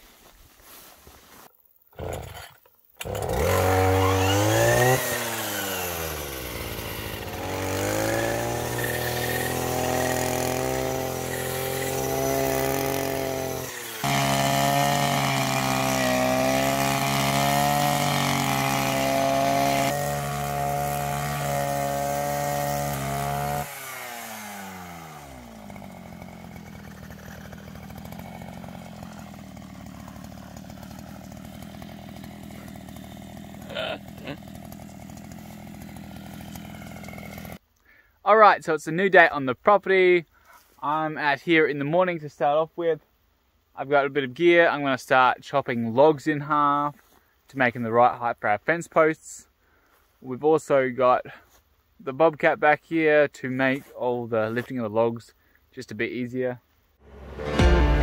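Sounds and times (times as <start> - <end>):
brush cutter engine revving: 1.9 - 37.6.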